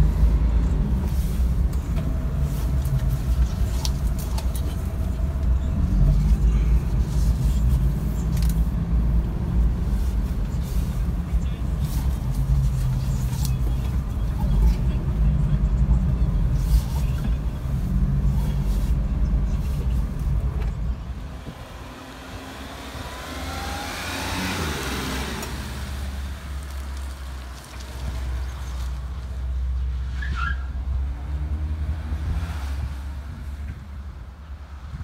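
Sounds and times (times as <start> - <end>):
van engine rumbling: 0.0 - 35.0.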